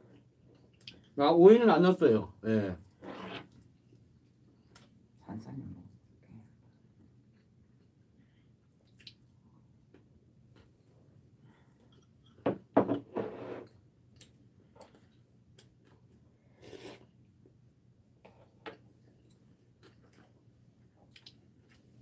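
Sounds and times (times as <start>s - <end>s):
utensil scraping: 3.0s - 3.6s.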